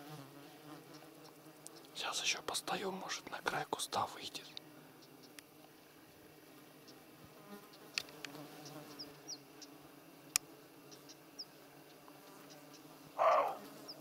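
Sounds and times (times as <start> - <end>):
flying insects buzzing: 0.0 - 14.0
faint clicks: 7.8 - 8.8.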